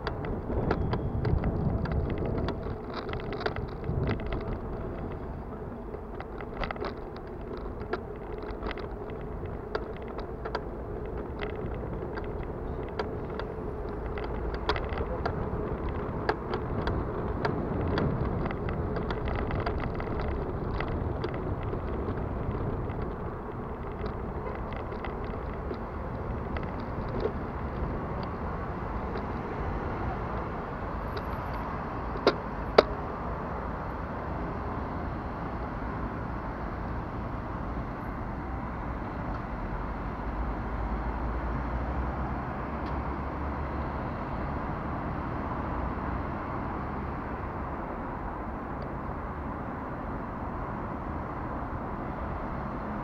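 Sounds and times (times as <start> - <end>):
bicycle drivetrain clicking and rattling: 0.0 - 33.1
wind and road noise: 0.0 - 53.0.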